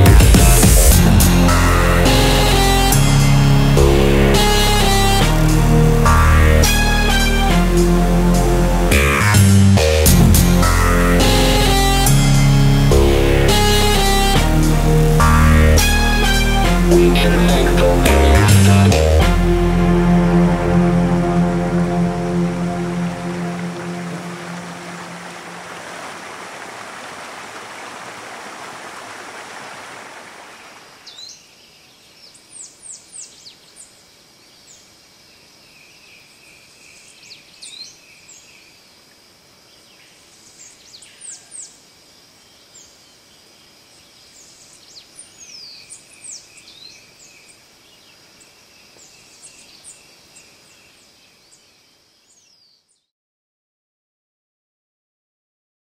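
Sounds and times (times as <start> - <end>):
water running over rock: 23.8 - 31.0.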